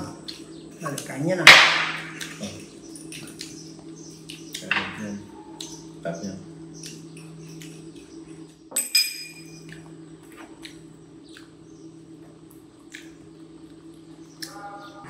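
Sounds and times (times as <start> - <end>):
steady low hum: 0.0 - 15.0
spoon clinking ceramic bowl: 8.7 - 9.6.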